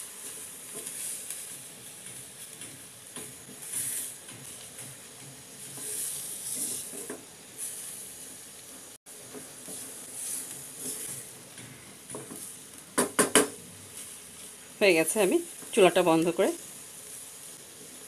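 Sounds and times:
oil sizzling: 0.0s - 18.0s
spatula scraping frying pan: 0.2s - 8.1s, 9.4s - 11.3s.

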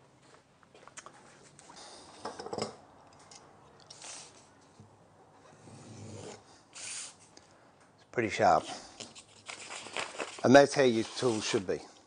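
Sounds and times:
paper rustling: 9.0s - 11.7s
plane blade slicing paper: 10.9s - 11.6s.

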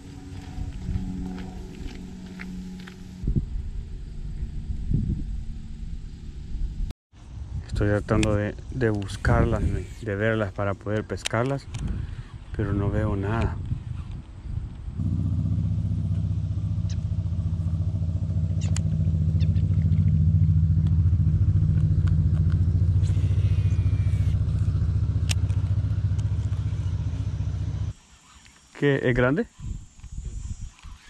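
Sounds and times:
engine humming: 0.0s - 6.9s, 15.0s - 28.0s.

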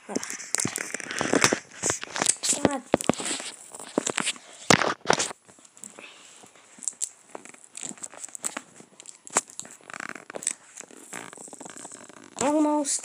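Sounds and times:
fingernails scratching packing tape: 6.9s - 12.6s.

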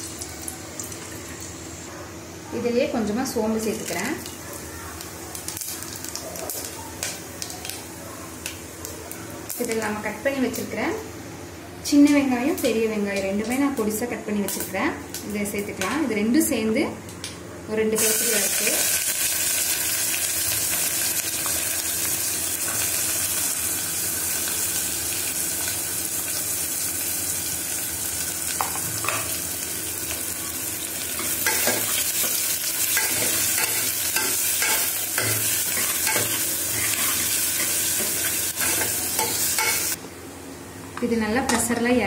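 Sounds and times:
onions sizzling in oil: 0.0s - 8.9s, 9.5s - 10.9s, 18.0s - 40.0s.

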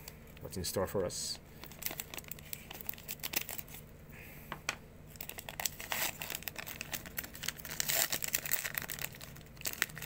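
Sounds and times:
plastic wrapper crinkling: 1.5s - 3.8s, 5.1s - 10.0s.

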